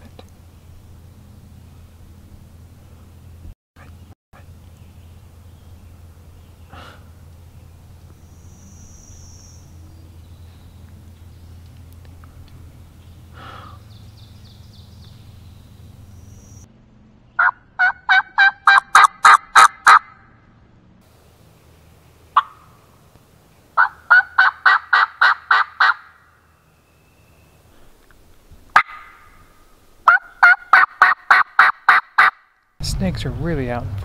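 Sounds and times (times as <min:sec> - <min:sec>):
turkey call harsh notes: 0:17.4 - 0:20.3, 0:22.4 - 0:22.8, 0:23.8 - 0:26.3, 0:28.8 - 0:32.5.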